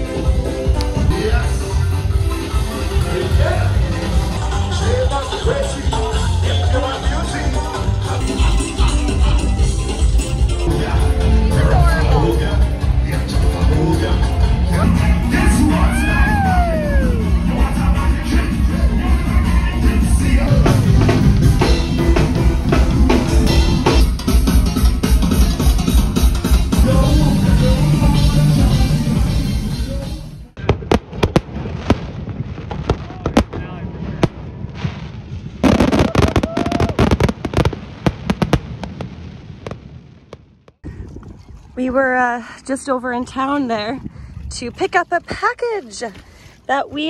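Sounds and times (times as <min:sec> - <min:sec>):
live band music: 0:00.0 - 0:30.3
drum kit beating: 0:12.6 - 0:30.2
fireworks bursting: 0:30.6 - 0:40.8.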